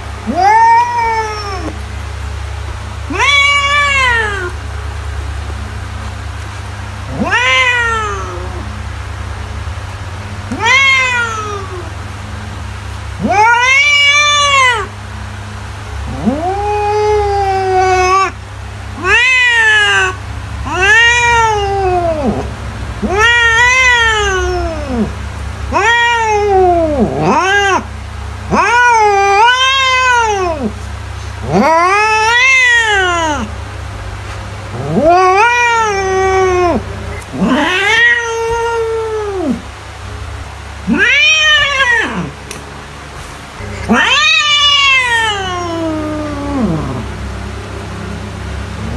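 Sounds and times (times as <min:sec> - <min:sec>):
cat meowing: 0:00.2 - 0:01.8, 0:03.1 - 0:04.6, 0:07.1 - 0:08.8, 0:10.5 - 0:11.9, 0:13.2 - 0:14.9, 0:16.1 - 0:18.4, 0:19.0 - 0:27.9, 0:28.5 - 0:30.8, 0:31.4 - 0:33.5, 0:34.7 - 0:39.7, 0:40.8 - 0:42.4, 0:43.6 - 0:48.1.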